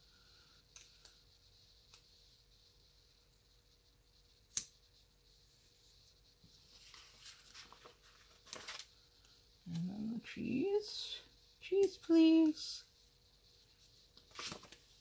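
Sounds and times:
paper rustling: 0:06.6 - 0:09.0, 0:14.2 - 0:15.0.

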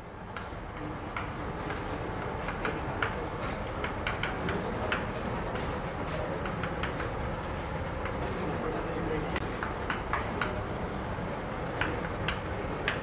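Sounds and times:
chalk tapping and scratching: 0:00.4 - 0:08.2, 0:09.4 - 0:10.6.

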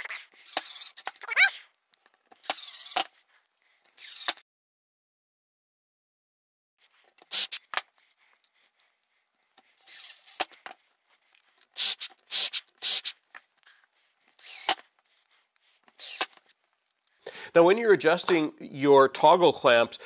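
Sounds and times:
impact driver driving screws: 0:00.5 - 0:01.2, 0:02.4 - 0:03.2, 0:04.0 - 0:04.4, 0:07.3 - 0:07.8, 0:09.9 - 0:10.6, 0:11.8 - 0:13.2, 0:14.4 - 0:14.9, 0:16.0 - 0:16.4.

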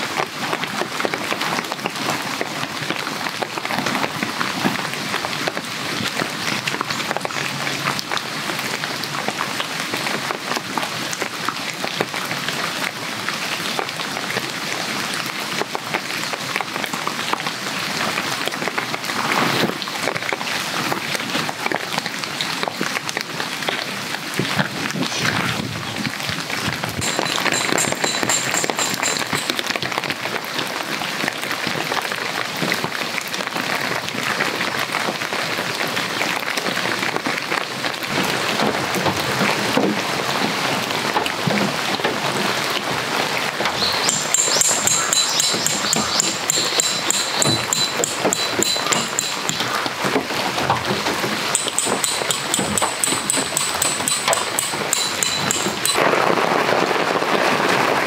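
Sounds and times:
steady rain: 0:00.0 - 0:58.0
tent pegs being hammered: 0:27.0 - 0:29.7, 0:44.0 - 0:49.8, 0:51.5 - 0:56.1.

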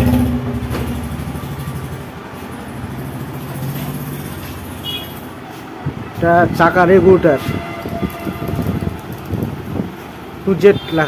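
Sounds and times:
large vehicle engine throbbing: 0:00.0 - 0:04.7.

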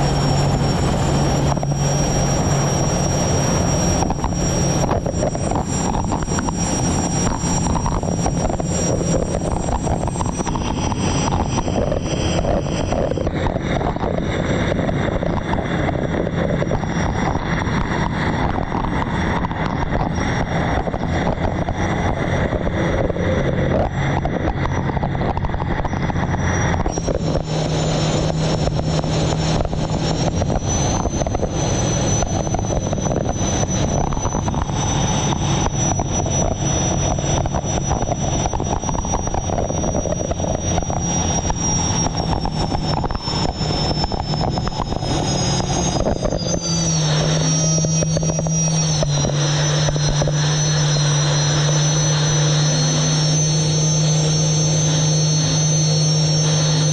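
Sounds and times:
high turbine whine and drone: 0:00.0 - 0:56.9
rushing wind and water: 0:00.0 - 0:56.9.

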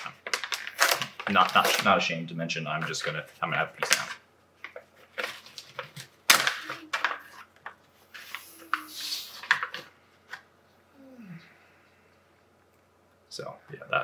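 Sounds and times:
chocolate cracking: 0:00.0 - 0:02.0
packet rustling and clicking: 0:00.0 - 0:02.0, 0:02.7 - 0:10.5
packet crinkling: 0:00.0 - 0:09.9.

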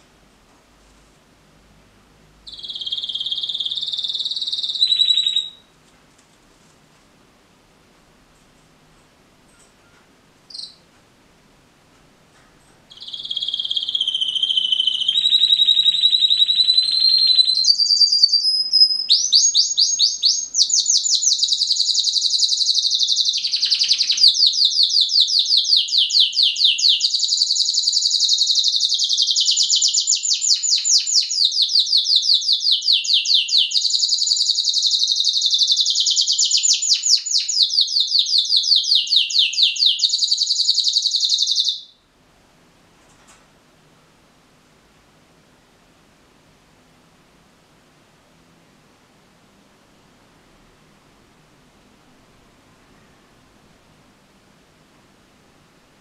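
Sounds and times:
canary singing trills: 0:02.4 - 0:05.7, 0:09.8 - 0:10.9, 0:12.9 - 0:42.0.

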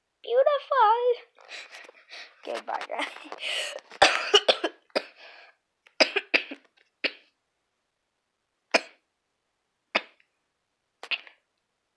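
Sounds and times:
person coughing: 0:04.0 - 0:05.2.

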